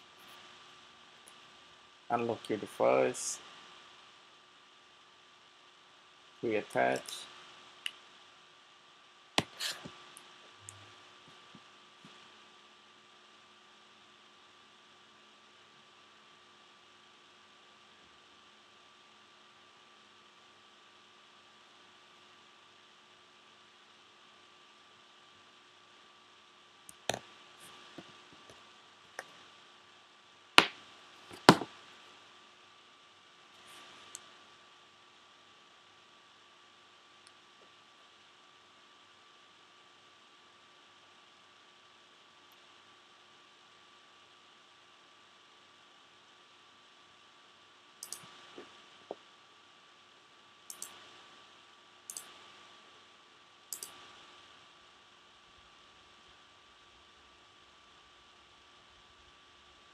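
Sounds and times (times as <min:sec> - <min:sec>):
faint electrical hum: 0:00.0 - 0:59.9
faint ticks: 0:48.0 - 0:48.6, 0:50.7 - 0:51.1, 0:52.1 - 0:52.4, 0:53.7 - 0:54.1
computer mouse clicks: 0:48.0 - 0:48.7, 0:50.7 - 0:51.1, 0:52.1 - 0:52.4, 0:53.7 - 0:54.1.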